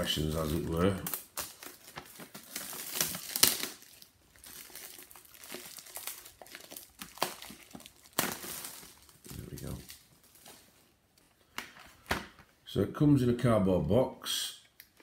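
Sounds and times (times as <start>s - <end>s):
plastic shrink-wrap crinkling: 0.0s - 11.3s.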